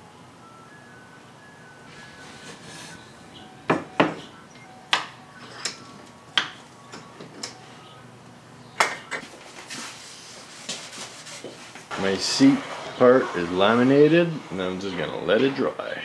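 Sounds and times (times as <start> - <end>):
wooden boards knocking: 3.7 - 4.3.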